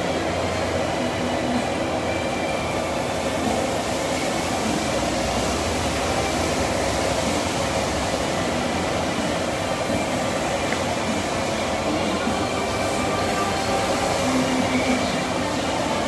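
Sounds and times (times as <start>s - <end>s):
droning ventilation noise: 0.0s - 16.0s.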